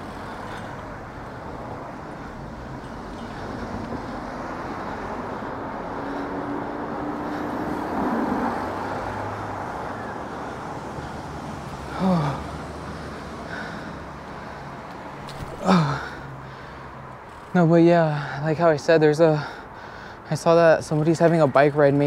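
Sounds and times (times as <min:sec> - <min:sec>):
vehicle passing: 0:00.0 - 0:20.2
steady street hum: 0:00.0 - 0:22.0.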